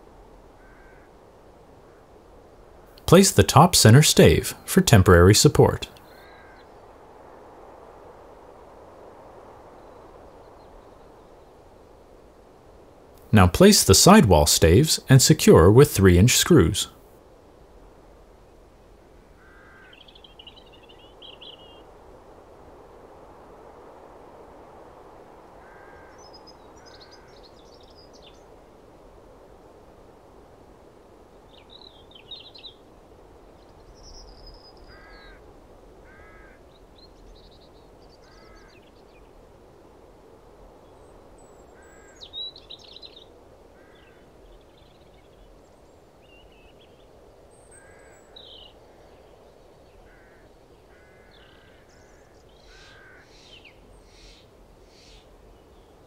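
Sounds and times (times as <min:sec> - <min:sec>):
quiet background hiss: 0:00.0 - 0:56.0
birds chirping and twittering: 0:19.4 - 0:21.9, 0:25.7 - 0:28.6, 0:31.4 - 0:32.9, 0:33.5 - 0:35.4, 0:36.1 - 0:39.3, 0:40.8 - 0:56.0.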